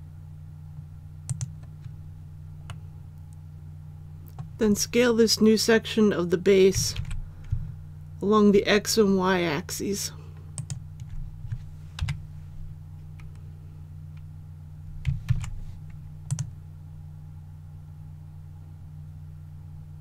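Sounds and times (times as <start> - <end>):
steady low hum: 0.0 - 20.0
keyboard keystrokes: 1.3 - 2.0, 10.6 - 11.2, 16.3 - 16.5.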